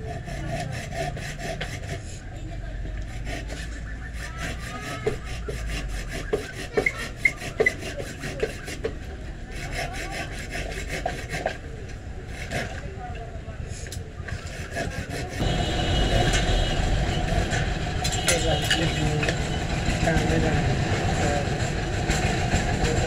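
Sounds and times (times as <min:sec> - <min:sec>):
knife scraping wood: 0:00.0 - 0:02.3, 0:03.0 - 0:11.6, 0:12.3 - 0:12.9, 0:14.3 - 0:15.6.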